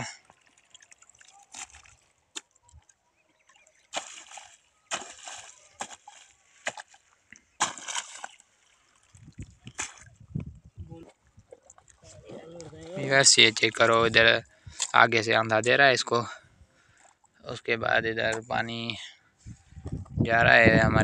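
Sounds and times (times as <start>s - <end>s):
hoe slapping wet mud: 0.8s - 2.5s, 3.9s - 10.1s.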